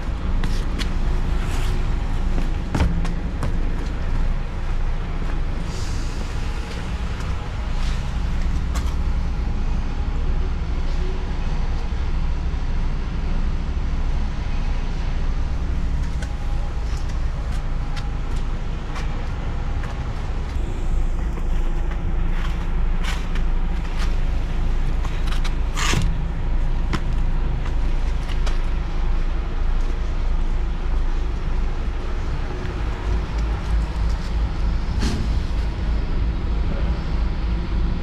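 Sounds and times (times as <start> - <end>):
road noise: 0.0 - 38.0
truck engine drone: 0.0 - 38.0.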